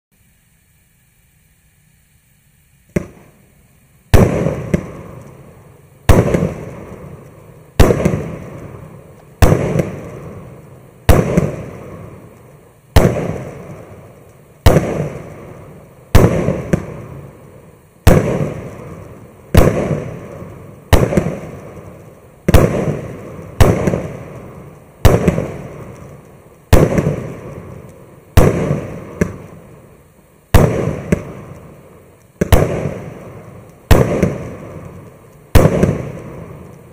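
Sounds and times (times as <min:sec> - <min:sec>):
fireworks bangs: 0:02.8 - 0:36.9
small pop: 0:02.9 - 0:03.2.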